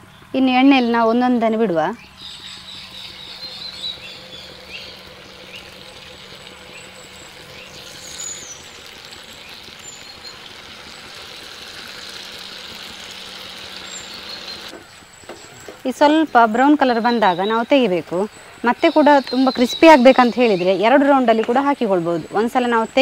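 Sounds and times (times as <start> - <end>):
bird chirps: 2.0 - 11.1, 13.7 - 23.0
food sizzling in hot oil: 3.2 - 14.7.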